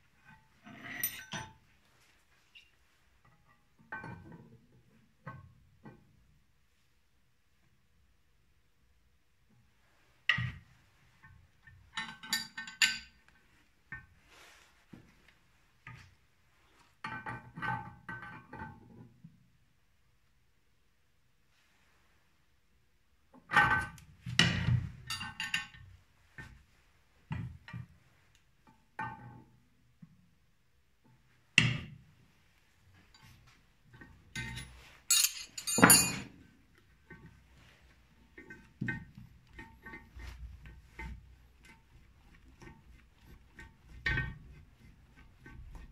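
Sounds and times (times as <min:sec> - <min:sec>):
wrench clinking and rattling on metal: 0:00.8 - 0:01.6, 0:12.0 - 0:13.2, 0:25.0 - 0:25.8, 0:34.3 - 0:36.4.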